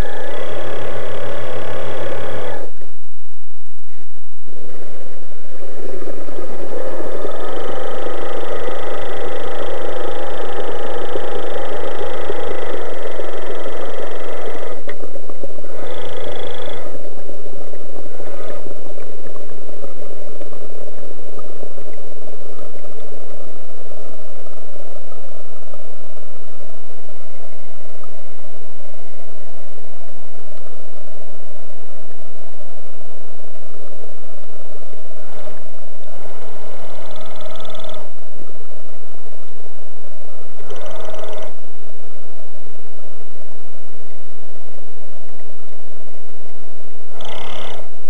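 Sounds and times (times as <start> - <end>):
electric motor whine: 0.0 - 2.8
model submarine motor humming: 0.0 - 2.8, 5.5 - 21.0
water gurgling and sloshing: 4.1 - 31.0, 33.7 - 41.8.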